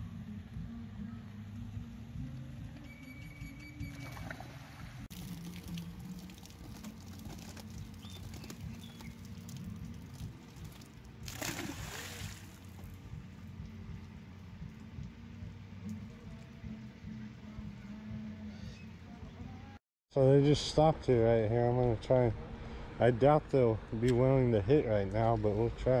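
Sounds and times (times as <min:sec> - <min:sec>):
water trickling and splashing: 0:03.9 - 0:17.1
fish dumped into pond splashing: 0:04.1 - 0:13.0.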